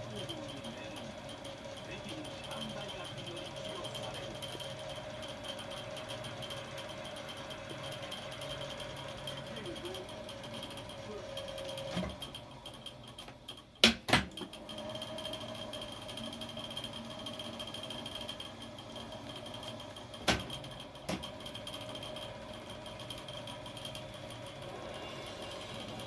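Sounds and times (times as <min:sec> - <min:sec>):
recorder mechanical running noise: 0:00.0 - 0:26.0
thin motor whine: 0:14.4 - 0:26.0.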